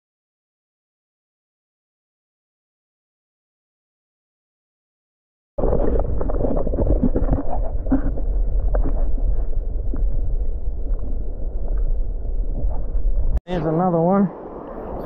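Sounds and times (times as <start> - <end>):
muffled underwater river current: 5.6 - 13.4, 14.0 - 15.0.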